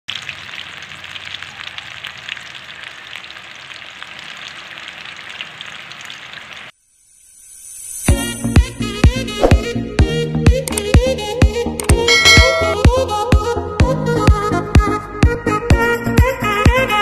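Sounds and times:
eggplant frying in hot oil: 0:00.1 - 0:08.0.

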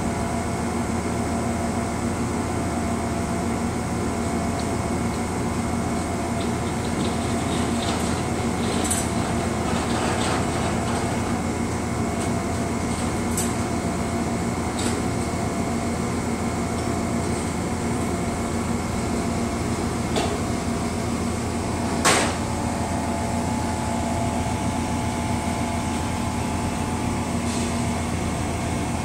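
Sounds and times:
train air-conditioning hum: 0:00.0 - 0:29.0.

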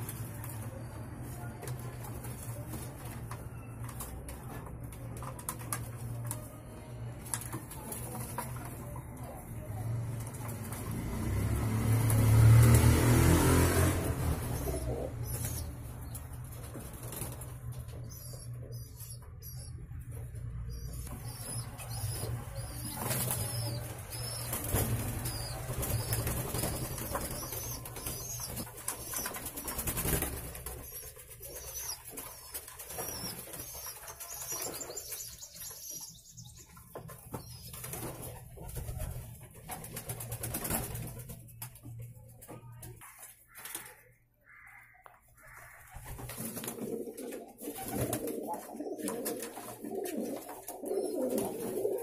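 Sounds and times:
wings flapping and splashing: 0:10.1 - 0:18.9, 0:20.8 - 0:36.2, 0:37.0 - 0:41.8, 0:45.6 - 0:52.0
pigeons cooing: 0:13.8 - 0:16.3, 0:20.6 - 0:35.9, 0:45.5 - 0:52.0.

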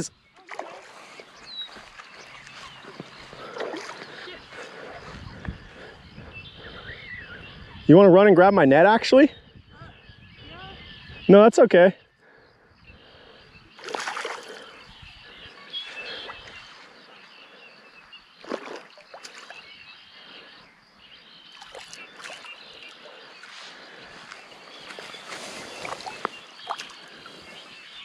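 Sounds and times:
steady outdoor hiss: 0:00.0 - 0:28.0
fish splashing at water surface: 0:13.8 - 0:14.6.

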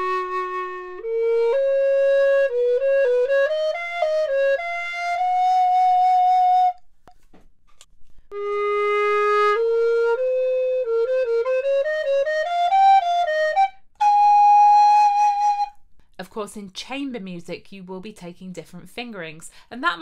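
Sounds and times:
recorder playing a melody: 0:00.0 - 0:06.8, 0:08.3 - 0:15.8.

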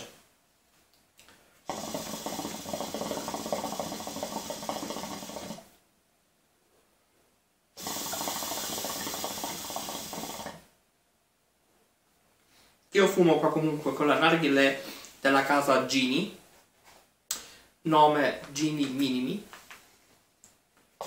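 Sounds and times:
hookah water bubbling: 0:01.6 - 0:05.8, 0:07.8 - 0:10.7.

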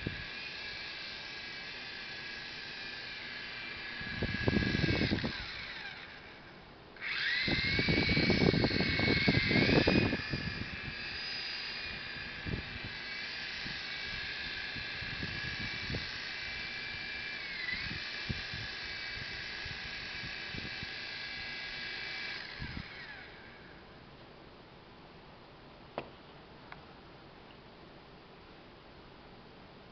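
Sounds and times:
toy helicopter motors whining: 0:00.0 - 0:23.8.

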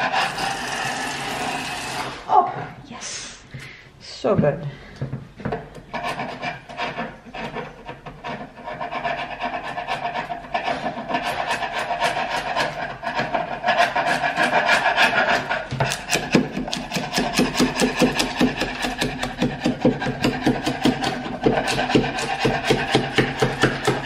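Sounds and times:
chisel scraping paint off wood: 0:05.5 - 0:24.0.

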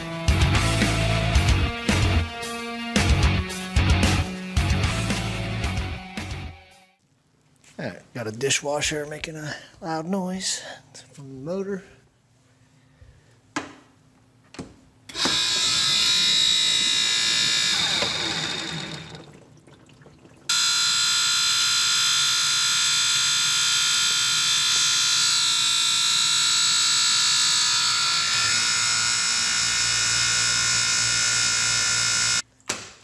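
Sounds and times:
dishwasher motor whining: 0:15.1 - 0:19.5, 0:20.5 - 0:32.4.

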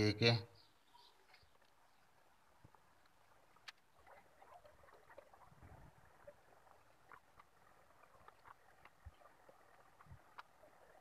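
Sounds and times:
faint clicks and scratches: 0:00.9 - 0:11.0.

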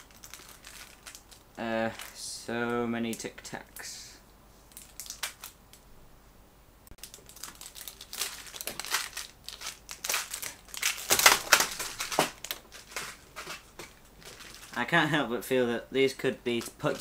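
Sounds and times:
mints crunching and clicking: 0:07.0 - 0:14.8.

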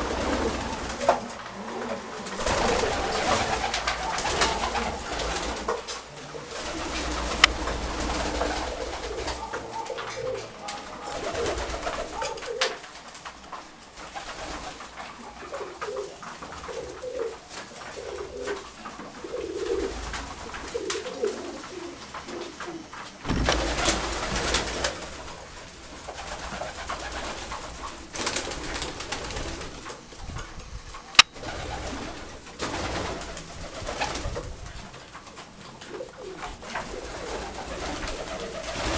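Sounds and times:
pigeons cooing: 0:00.0 - 0:38.9
burst of noise: 0:23.2 - 0:24.3.

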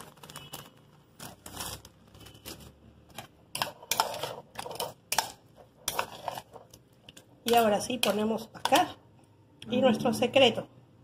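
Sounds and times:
metal spoon scraping bowl: 0:01.5 - 0:09.0.

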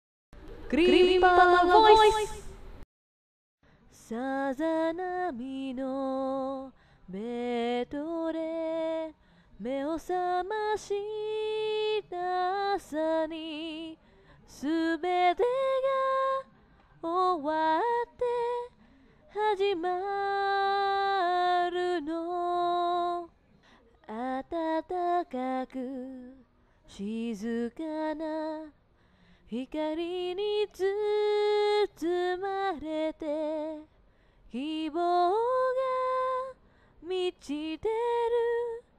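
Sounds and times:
woman singing solo: 0:00.7 - 0:02.6.

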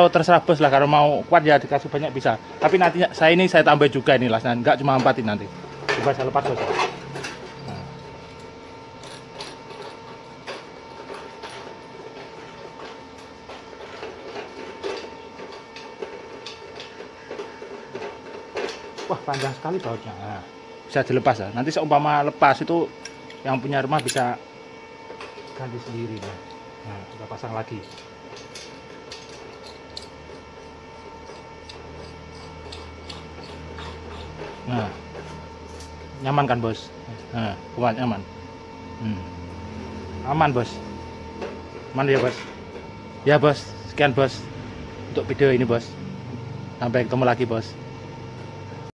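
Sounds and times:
faint hum: 0:00.0 - 0:47.5
metal threads clicking and scraping: 0:27.6 - 0:35.9.

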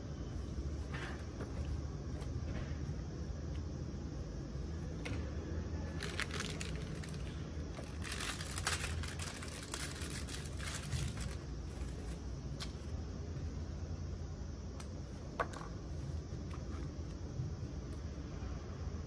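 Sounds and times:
steady low hum: 0:00.0 - 0:19.0
wrapping crinkling: 0:05.9 - 0:12.2.

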